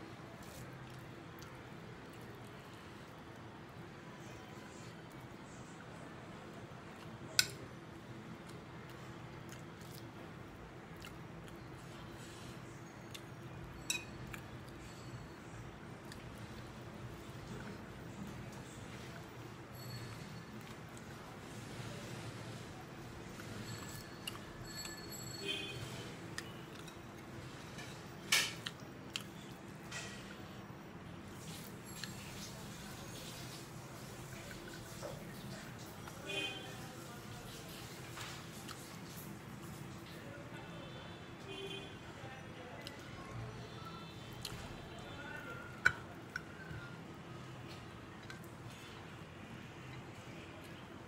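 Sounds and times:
fingers mixing rice on a plate: 0:00.4 - 0:03.1.

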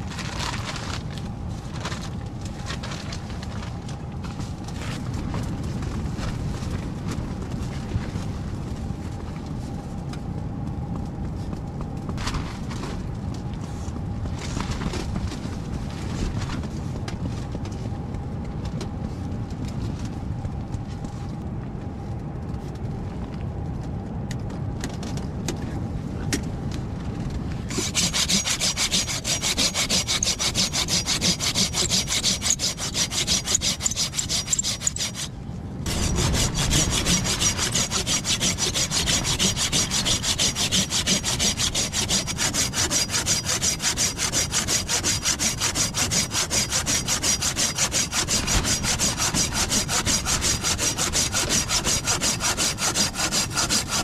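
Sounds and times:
low rumbling noise: 0:00.0 - 0:54.0
hand saw cutting wood: 0:27.7 - 0:35.3, 0:35.9 - 0:54.0.

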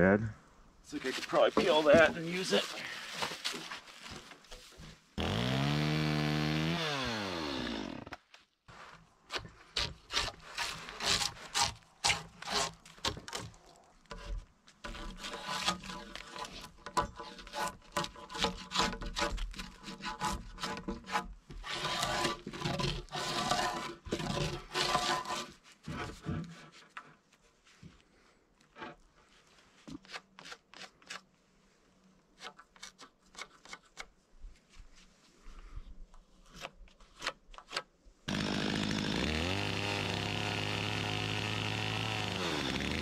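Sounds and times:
drawknife scraping bark: 0:09.3 - 0:25.6, 0:29.9 - 0:31.3.

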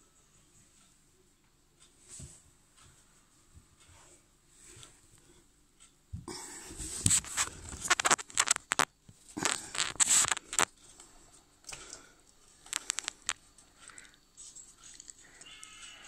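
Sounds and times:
scratchy clicks and rattles from handling: 0:07.1 - 0:11.0, 0:12.6 - 0:15.7.

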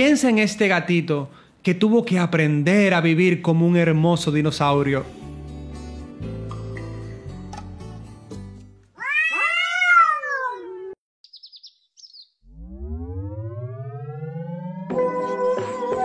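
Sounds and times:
background music: 0:03.6 - 0:08.8, 0:14.4 - 0:16.0
cat meowing: 0:09.0 - 0:11.0
low tone rising in pitch: 0:12.4 - 0:15.9.

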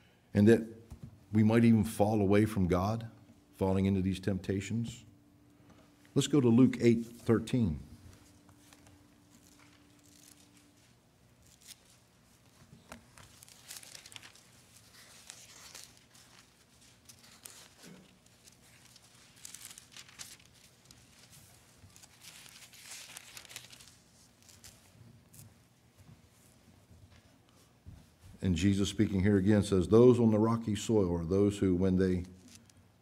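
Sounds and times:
paper pages rustling: 0:08.0 - 0:27.7, 0:32.4 - 0:32.8.

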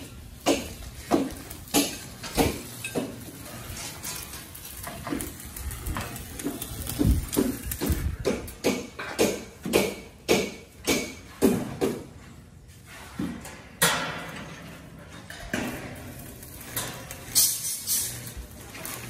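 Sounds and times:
sharp metal knocks: 0:07.4 - 0:12.1.

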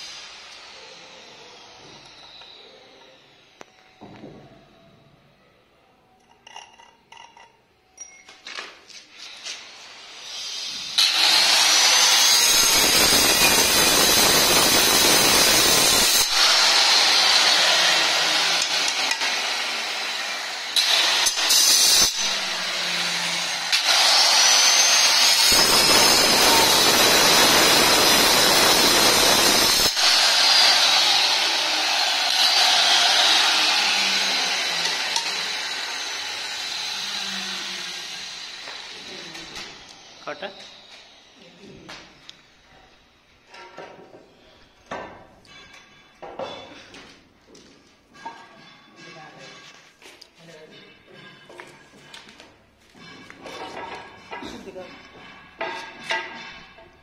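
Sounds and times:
blade grinding stone: 0:11.0 - 0:19.7, 0:20.7 - 0:38.8
cutter motor whining: 0:11.0 - 0:41.4.

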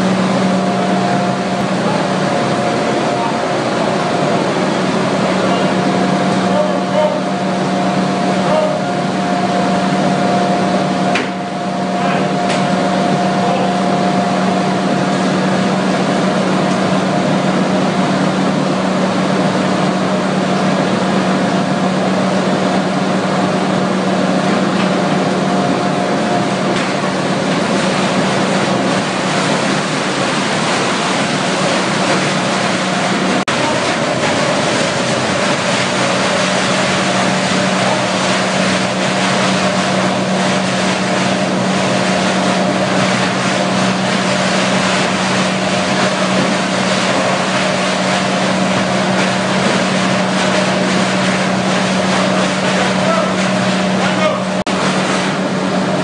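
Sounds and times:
paper shredder droning: 0:22.8 - 0:56.0.

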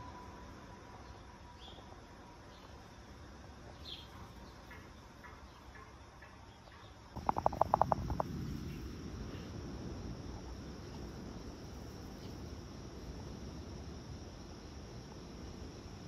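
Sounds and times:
high insect trill: 0:00.0 - 0:16.0
low noise: 0:00.0 - 0:16.0
faint bird chirps: 0:03.7 - 0:08.9
rapid sharp pulses: 0:07.2 - 0:08.7.

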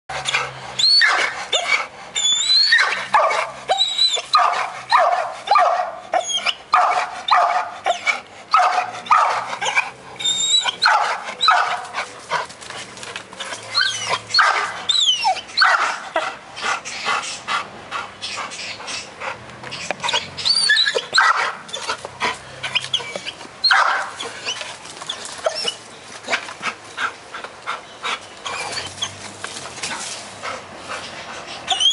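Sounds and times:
dog barking: 0:03.1 - 0:03.5, 0:04.3 - 0:06.0, 0:06.7 - 0:07.7, 0:08.5 - 0:09.5, 0:10.8 - 0:11.8, 0:14.4 - 0:14.8, 0:15.6 - 0:16.0, 0:21.2 - 0:21.6, 0:23.7 - 0:24.2.

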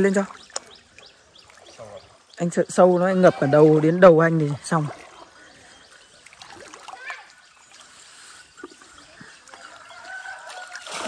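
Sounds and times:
pond water splashing and trickling: 0:00.0 - 0:11.0.

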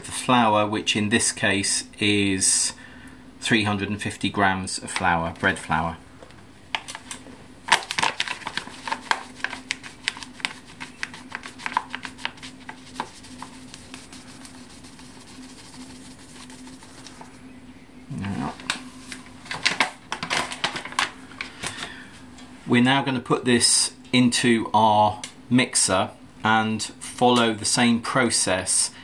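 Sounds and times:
faint steady hum: 0:00.0 - 0:29.0
paper bag crinkling: 0:06.8 - 0:17.3.

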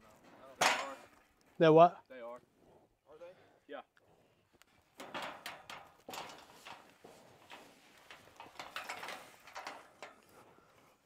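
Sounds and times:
clattering and rattling knocks: 0:05.0 - 0:10.2.

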